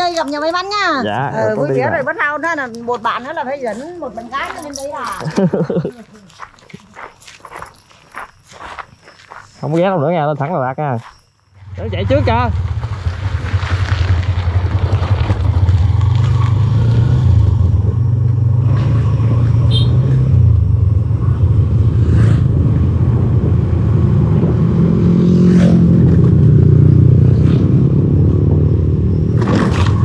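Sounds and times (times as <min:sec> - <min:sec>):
motorcycle engine running: 0:11.7 - 0:23.8.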